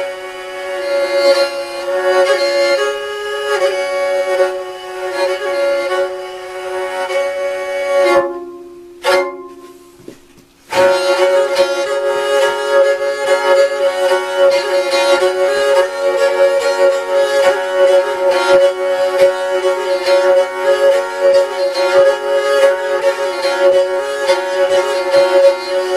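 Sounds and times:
bowed lyre tune: 0:00.0 - 0:25.9
drone string: 0:10.7 - 0:25.9.

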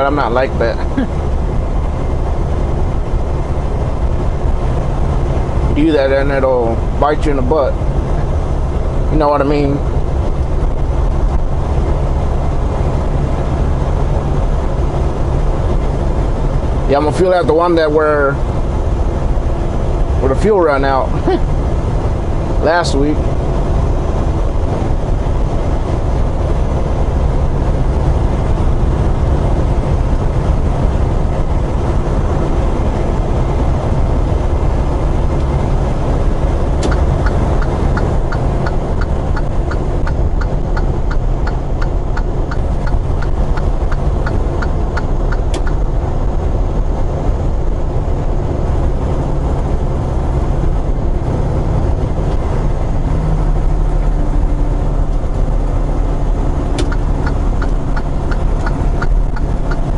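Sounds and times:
diesel engine and road drone: 0:00.0 - 0:59.9
turn signal ticking: 0:23.1 - 0:59.9.

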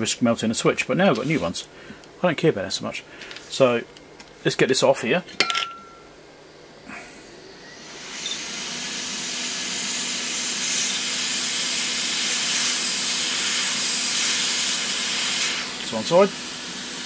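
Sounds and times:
hot air gun hissing: 0:06.9 - 0:17.0.

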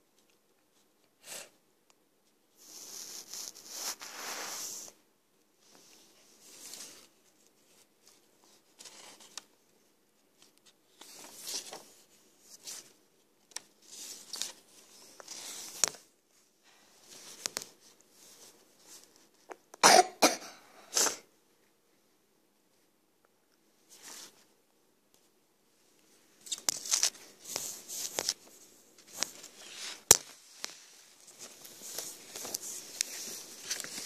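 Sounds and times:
paper pages rustling: 0:02.6 - 0:04.9, 0:05.7 - 0:09.6, 0:10.2 - 0:19.6, 0:26.3 - 0:34.0.

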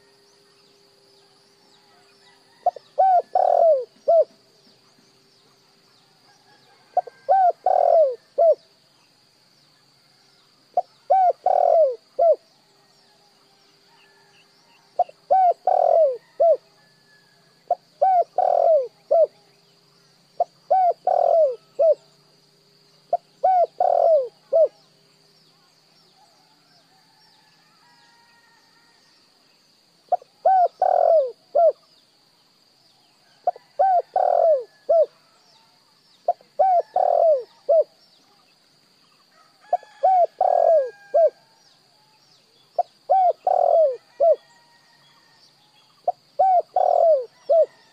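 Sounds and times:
faint high-pitched whine: 0:00.0 - 0:47.9
dove cooing: 0:02.5 - 0:04.4, 0:06.8 - 0:08.6, 0:10.8 - 0:12.4, 0:15.0 - 0:16.6, 0:17.7 - 0:19.4, 0:20.4 - 0:22.1, 0:23.1 - 0:24.8, 0:30.1 - 0:31.8, 0:33.4 - 0:35.2, 0:36.3 - 0:37.9, 0:39.7 - 0:41.4, 0:42.8 - 0:44.5, 0:46.0 - 0:47.9.

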